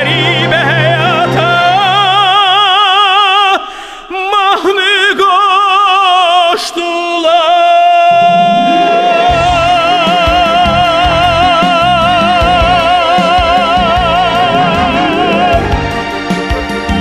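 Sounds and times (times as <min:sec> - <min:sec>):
musical accompaniment: 0:00.0 - 0:03.3, 0:08.0 - 0:17.0
man singing operatic notes: 0:00.0 - 0:16.3.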